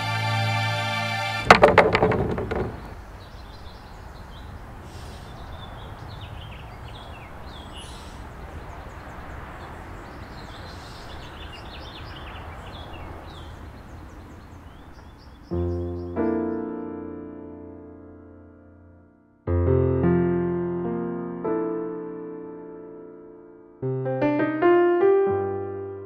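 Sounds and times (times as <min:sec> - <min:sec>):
birds chirping: 0:01.5 - 0:16.9.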